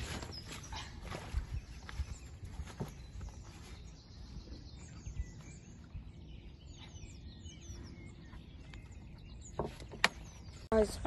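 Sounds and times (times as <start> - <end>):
small birds chirping: 0.0 - 11.0
wind rumble on microphone: 1.1 - 9.4.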